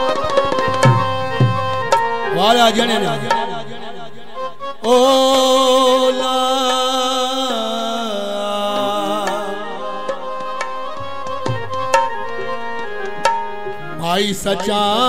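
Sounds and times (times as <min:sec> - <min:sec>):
tabla strokes: 0:00.0 - 0:02.4, 0:08.8 - 0:13.7.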